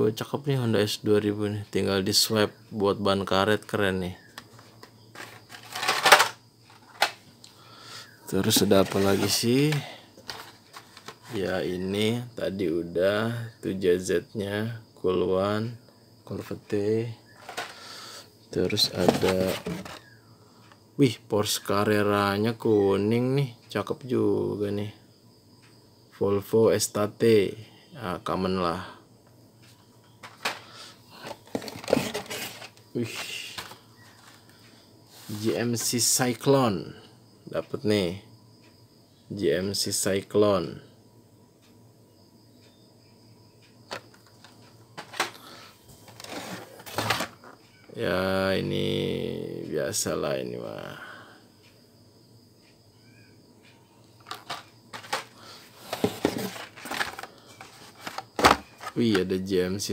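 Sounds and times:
plastic packs clicking and knocking: 4.4 - 7.2, 8.4 - 11.3, 17.4 - 17.8, 18.7 - 20.1, 30.2 - 34.4, 43.9 - 47.6, 54.2 - 59.3
packaging rustling: 4.7 - 7.2, 8.4 - 11.4, 18.8 - 20.1, 31.3 - 34.4, 43.9 - 45.4, 46.0 - 47.6, 54.2 - 59.2.

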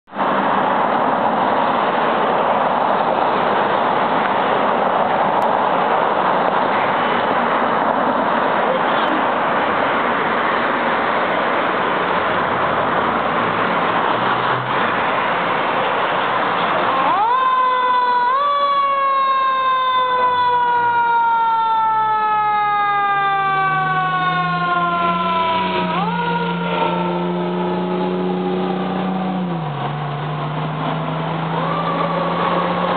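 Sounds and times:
fire engine siren: 13.8 - 32.9.

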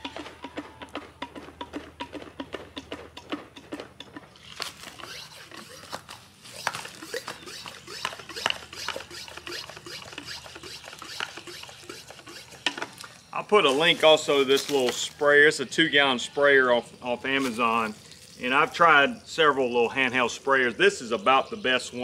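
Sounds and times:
pump handle strokes: 0.0 - 15.2
air hissing through pump: 4.8 - 13.1.

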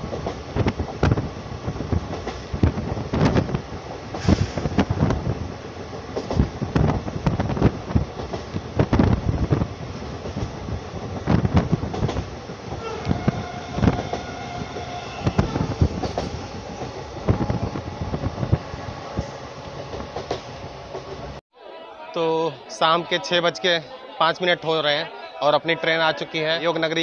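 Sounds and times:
train wheels clattering over rail joints: 0.0 - 18.6.

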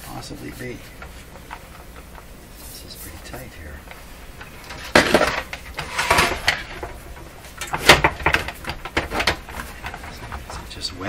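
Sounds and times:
metal chassis scraping in cabinet: 4.8 - 6.9.

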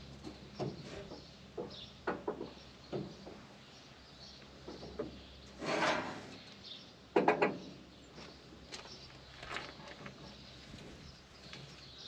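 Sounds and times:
scraping rustle: 5.5 - 6.4
loud sharp knocks: 7.2 - 7.6.

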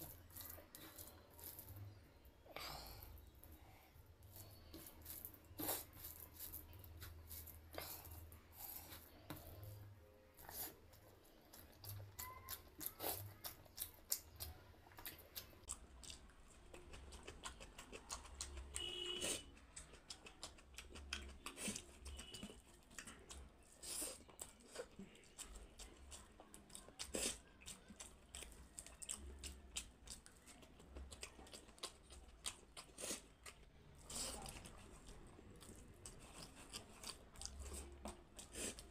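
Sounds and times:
fingers squishing rice: 0.0 - 2.0, 2.6 - 38.9
chewing with wet mouth smacks: 10.4 - 38.9.

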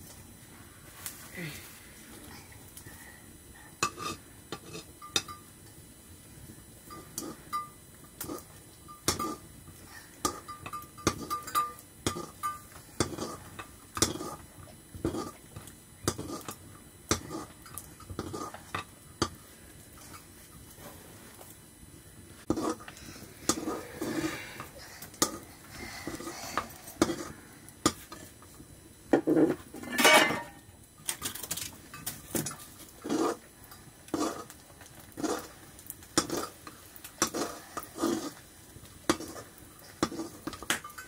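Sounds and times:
wooden stick scraping metal pot: 22.5 - 25.4.

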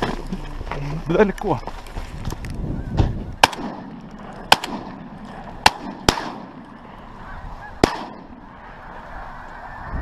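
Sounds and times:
shotgun shots: 3.4 - 6.7, 7.8 - 8.4
geese honking: 5.6 - 10.0.

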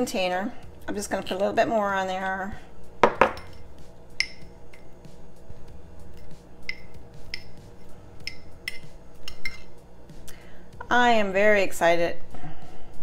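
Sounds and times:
knife clinking against ceramic mug: 3.0 - 3.6, 8.2 - 9.7.

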